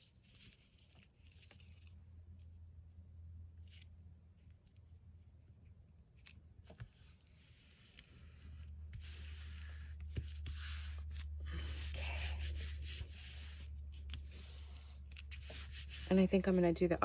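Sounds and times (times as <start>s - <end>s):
hand rubbing paper: 6.8s - 17.0s.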